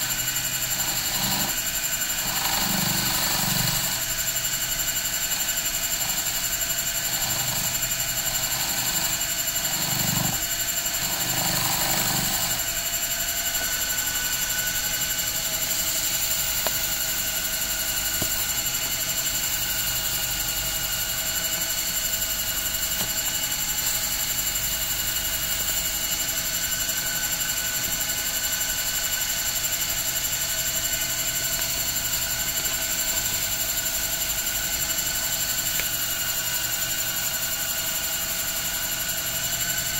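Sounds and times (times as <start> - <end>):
lathe motor humming and whining: 0.0 - 39.9
cue tip being sanded: 7.0 - 12.7.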